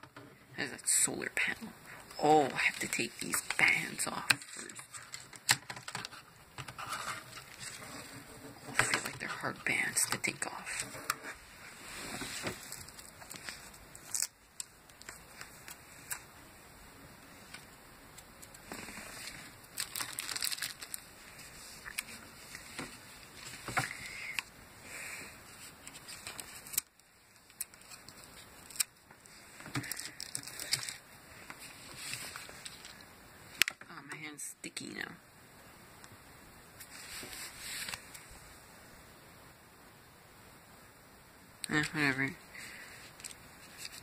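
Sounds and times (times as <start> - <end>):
plastic packaging crinkling: 2.4 - 10.9, 11.9 - 16.3, 18.4 - 24.5, 25.5 - 33.0, 43.0 - 44.0.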